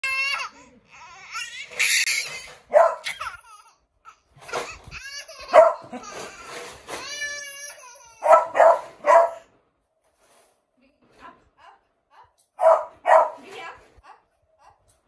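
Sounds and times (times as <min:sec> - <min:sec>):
baby laughing: 0:00.0 - 0:08.5, 0:14.0 - 0:15.0
dog barking: 0:02.7 - 0:03.2, 0:05.5 - 0:05.9, 0:08.2 - 0:09.5, 0:12.6 - 0:13.5.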